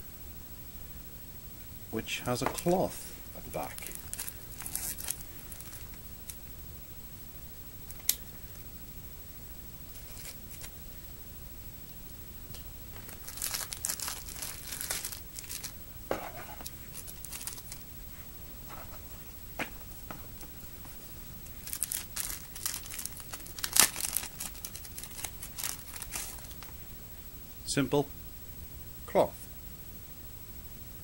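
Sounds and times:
plastic packaging crinkling: 0:03.5 - 0:06.0, 0:10.0 - 0:10.7, 0:12.9 - 0:17.8, 0:21.4 - 0:26.8.

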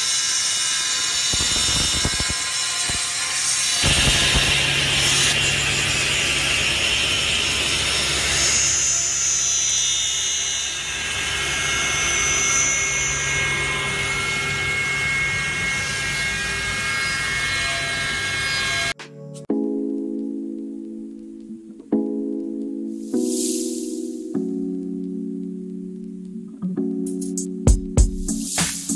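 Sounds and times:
table saw cutting wood: 0:00.0 - 0:19.0.

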